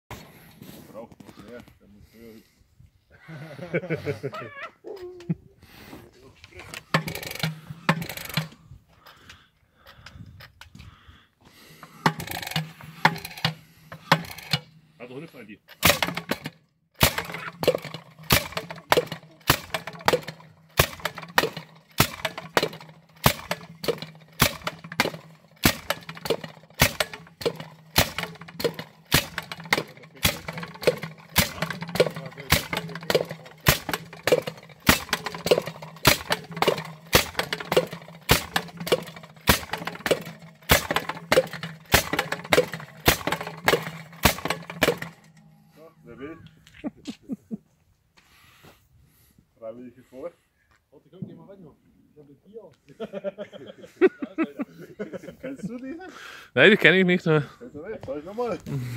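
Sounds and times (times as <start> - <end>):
tamper engine banging and clanking: 6.6 - 9.2, 11.5 - 14.9, 15.7 - 45.8.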